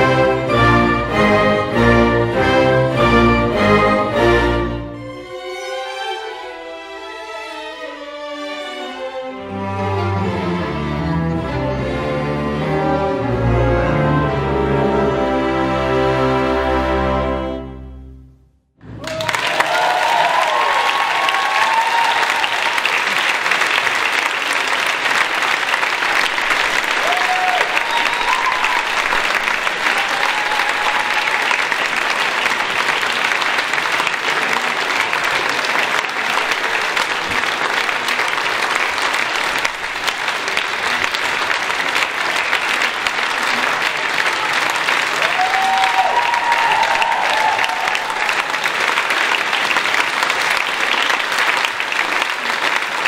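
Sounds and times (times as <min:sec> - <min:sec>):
crowd applauding: 0:18.8 - 0:53.0.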